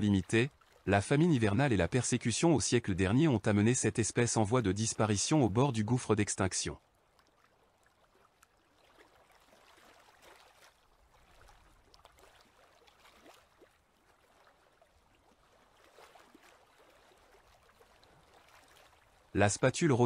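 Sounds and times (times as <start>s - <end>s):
soft ticks and crackles: 6.8s - 19.2s.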